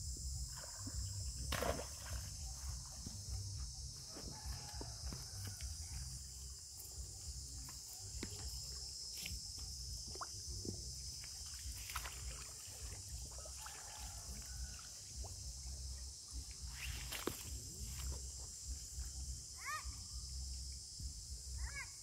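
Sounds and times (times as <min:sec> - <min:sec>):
high insect buzz: 0:00.0 - 0:22.0
monkey splashing in water: 0:11.3 - 0:14.5.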